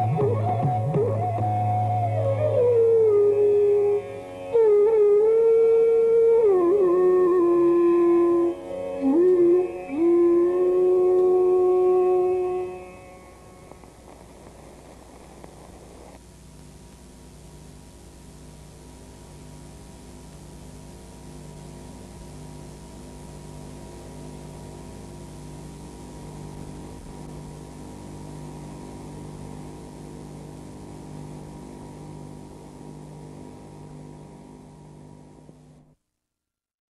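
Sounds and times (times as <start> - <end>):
electrical hum: 0.0 - 36.0.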